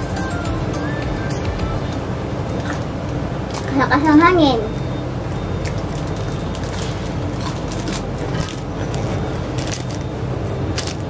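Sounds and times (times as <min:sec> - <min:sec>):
plastic snack wrapper crackling: 0:05.6 - 0:11.0.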